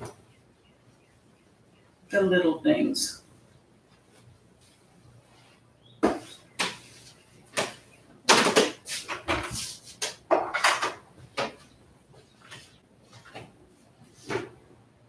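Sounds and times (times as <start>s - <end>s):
household things knocking and clattering: 7.6s - 9.6s, 10.2s - 11.7s.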